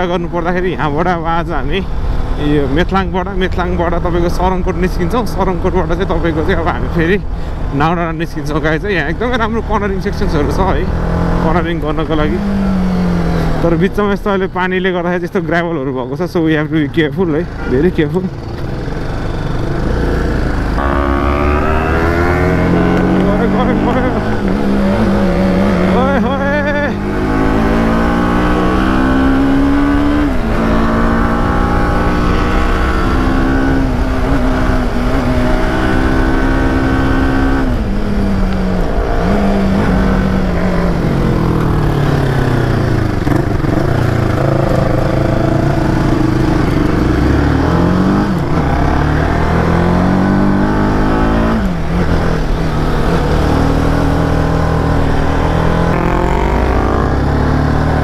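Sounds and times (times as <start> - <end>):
motorcycle engine revving: 9.4 - 13.9, 17.4 - 58.0.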